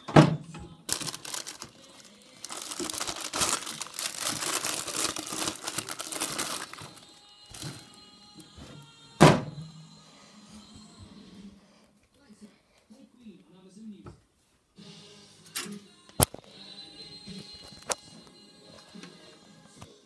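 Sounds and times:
faint background music: 0.0s - 20.0s
packaging crinkling: 0.9s - 8.0s.

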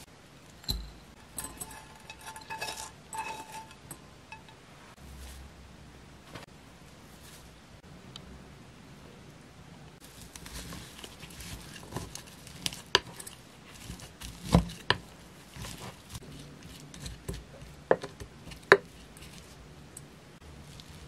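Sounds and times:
spoon stirring food: 0.7s - 4.6s.

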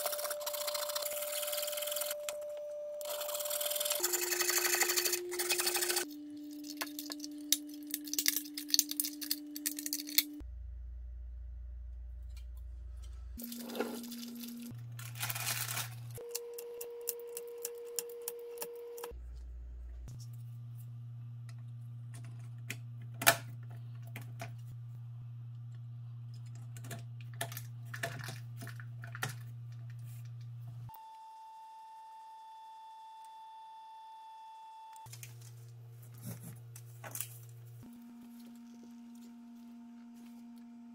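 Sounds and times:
battery cells clicking and rattling: 3.0s - 10.4s.

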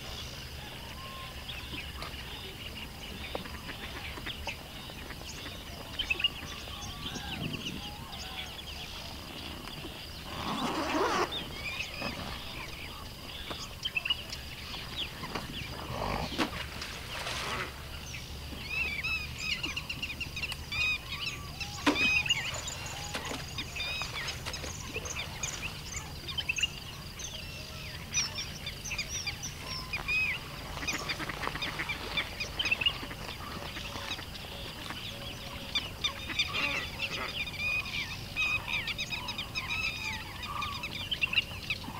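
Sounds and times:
birds chirping: 0.0s - 41.9s
lower bird call: 5.4s - 16.6s.

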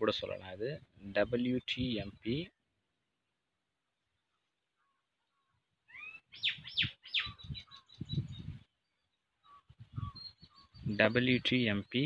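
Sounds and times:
bird chirping sharply: 5.9s - 8.5s.

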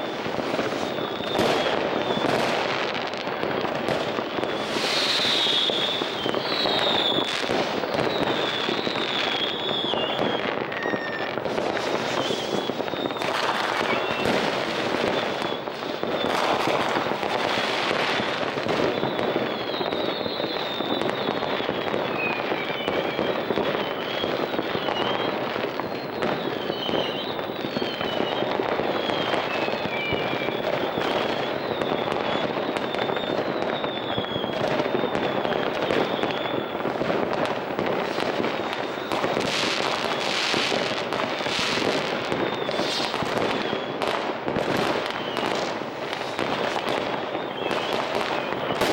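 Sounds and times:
fireworks banging and crackling: 0.0s - 48.9s
short high whistles: 4.6s - 14.3s, 22.0s - 36.8s, 42.4s - 44.0s.

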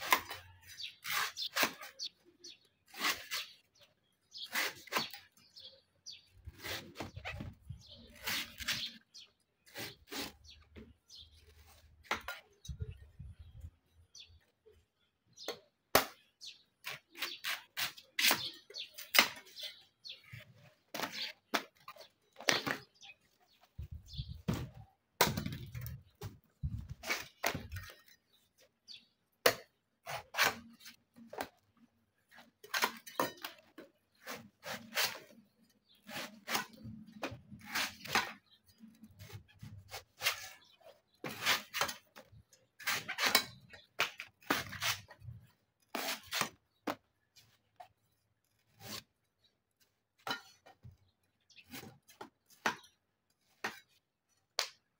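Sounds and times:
cleaver cutting coconut husk: 0.0s - 2.1s, 2.9s - 3.6s, 4.4s - 5.4s, 6.5s - 7.5s, 8.1s - 9.0s, 9.6s - 10.9s, 16.8s - 19.6s, 29.4s - 31.5s, 32.3s - 35.4s, 36.0s - 38.5s, 39.2s - 42.0s, 42.8s - 47.1s.

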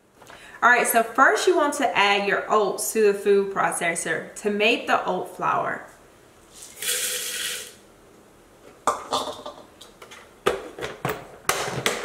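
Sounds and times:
oats pouring into plastic bowl: 6.5s - 7.8s.

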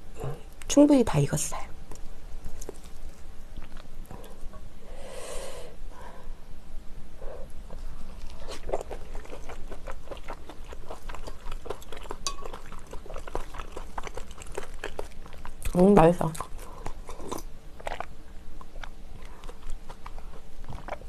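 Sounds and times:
wet chewing: 1.9s - 4.6s, 7.7s - 21.0s.

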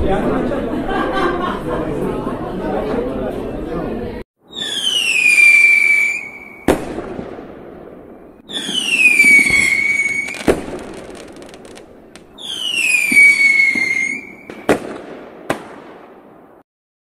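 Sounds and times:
firework rocket whistling: 4.4s - 7.0s, 8.4s - 14.8s
firework crackle: 4.5s - 16.4s
firework bang: 4.6s - 16.6s.

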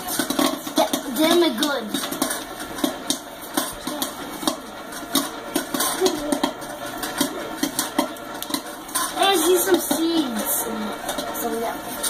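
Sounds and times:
popcorn kernels popping: 0.0s - 12.0s.

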